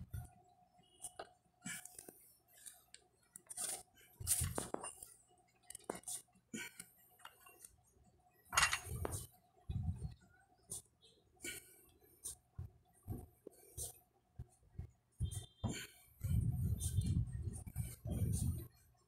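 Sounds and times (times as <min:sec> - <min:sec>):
dumbbell plates clinking: 0:08.6 - 0:09.0.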